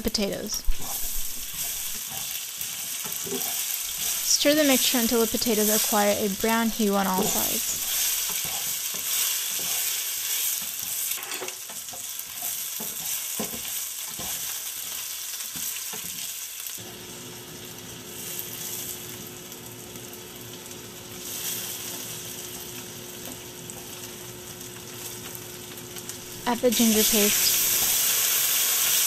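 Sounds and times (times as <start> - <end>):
food sizzling in oil: 0.0 - 29.0
spatula scraping and tapping pan: 0.7 - 4.3, 6.8 - 16.3.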